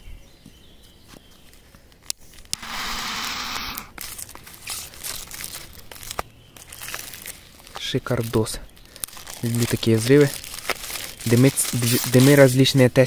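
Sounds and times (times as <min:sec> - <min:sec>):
wrapper tearing: 0:03.7 - 0:12.8
packaging clicks and rustles: 0:03.9 - 0:13.0.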